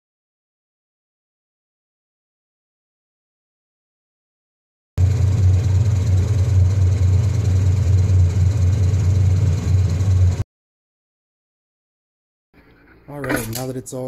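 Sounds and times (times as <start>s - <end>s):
trim saw motor hum: 5.0s - 10.4s.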